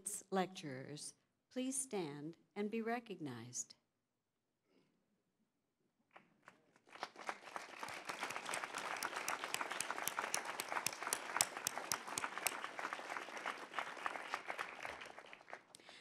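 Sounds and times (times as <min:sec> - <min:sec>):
audience applauding: 0:06.4 - 0:16.0.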